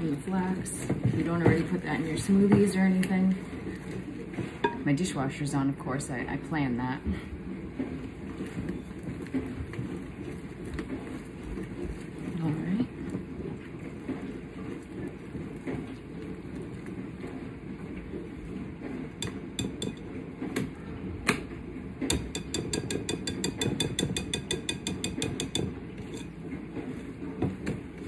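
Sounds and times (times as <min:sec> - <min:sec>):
dishwasher running: 0:00.0 - 0:28.0
spoon clacking against bowl: 0:19.2 - 0:20.1, 0:22.1 - 0:26.4.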